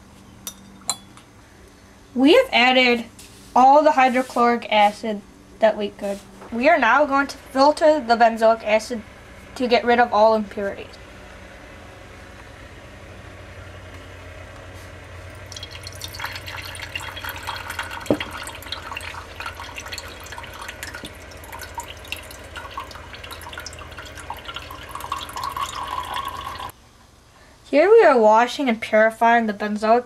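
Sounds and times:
slurry splashing and dripping: 15.3s - 26.7s.

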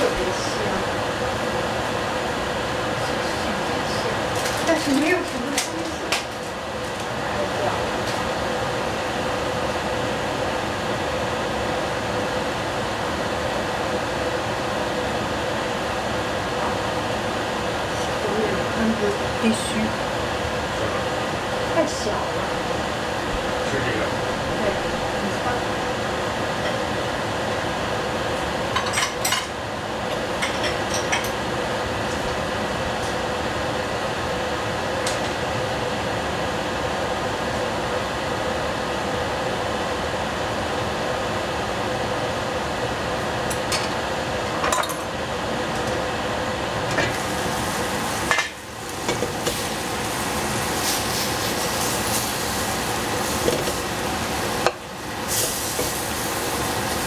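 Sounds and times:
food sizzling in a pot: 46.9s - 57.0s.

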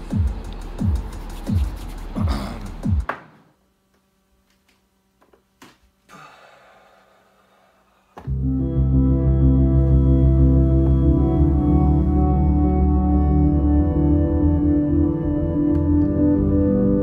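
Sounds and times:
synthesizer chord with deep bass: 8.3s - 17.0s.

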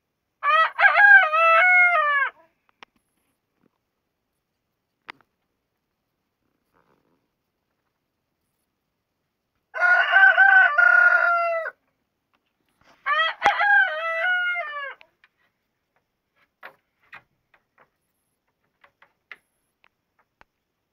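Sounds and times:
rooster crowing: 0.4s - 2.4s, 9.7s - 11.8s, 13.0s - 15.0s.

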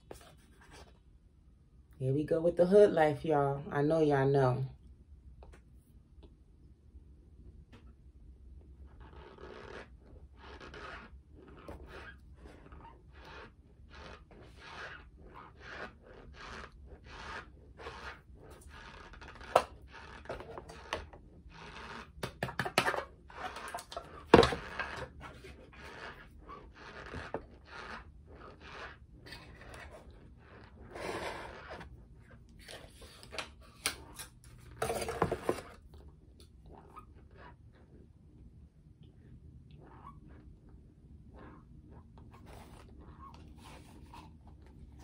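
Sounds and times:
squeaky crunchy chewing: 8.9s - 20.9s, 25.8s - 30.9s
spoon scraping container: 9.0s - 35.8s.

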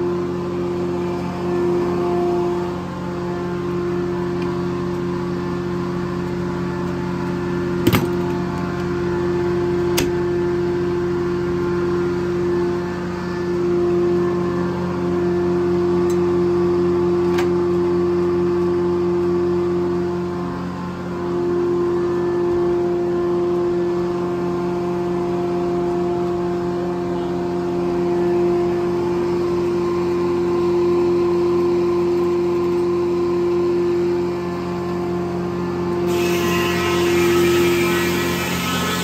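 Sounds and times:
circular saw blade humming: 20.9s - 39.0s.

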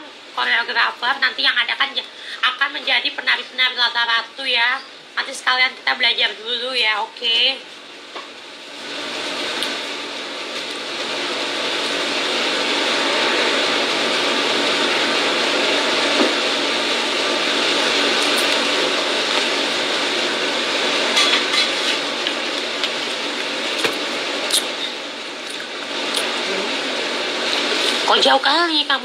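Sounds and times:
food sizzling in a pan: 7.6s - 29.0s.

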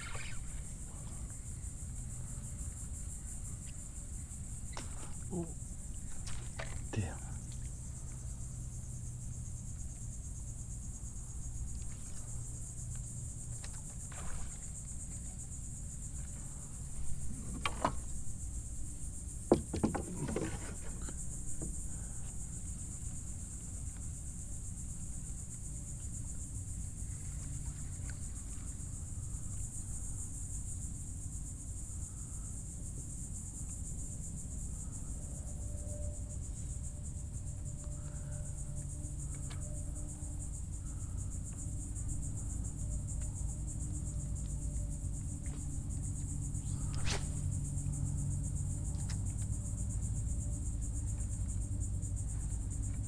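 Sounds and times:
high-pitched insect drone: 0.0s - 7.4s, 34.6s - 48.8s.

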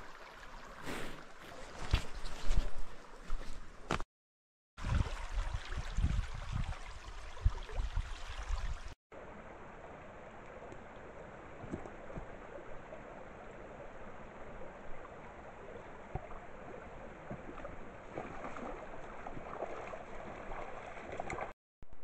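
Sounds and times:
water running steadily: 0.0s - 1.5s, 4.8s - 21.6s
faint small splashes: 16.1s - 21.6s.

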